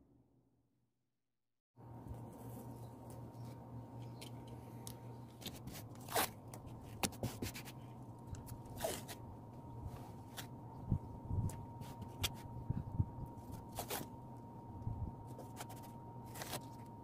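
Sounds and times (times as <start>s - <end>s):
steady low hum: 1.8s - 17.0s
tape handling scratches and clicks: 2.6s - 9.2s, 11.4s - 12.6s, 13.3s - 14.2s, 15.2s - 17.0s.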